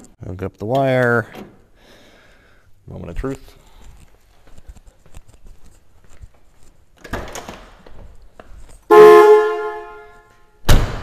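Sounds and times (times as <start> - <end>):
car horn blast: 8.9 - 10.5.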